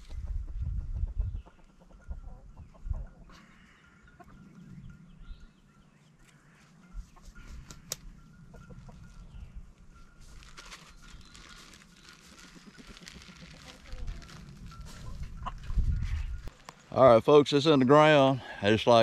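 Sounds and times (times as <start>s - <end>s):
chickens clucking: 0.2s - 4.4s, 7.0s - 9.5s, 14.8s - 16.4s.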